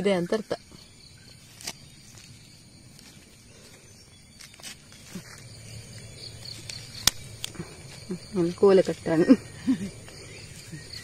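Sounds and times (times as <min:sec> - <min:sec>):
outdoor background: 0:00.0 - 0:11.0
knife scraping soil: 0:01.2 - 0:09.2.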